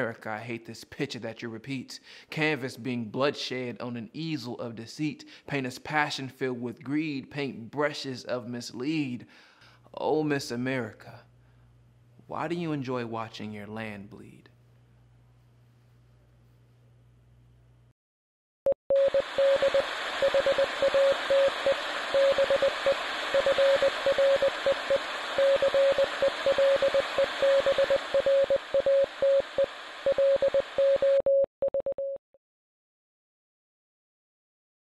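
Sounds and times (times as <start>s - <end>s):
morse code beeping: 18.9s - 32.2s
radio static hiss: 19.2s - 31.0s.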